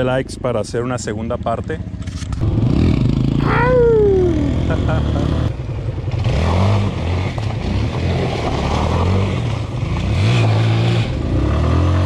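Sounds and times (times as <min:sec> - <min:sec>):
motorcycle engines revving: 0:00.0 - 0:12.0.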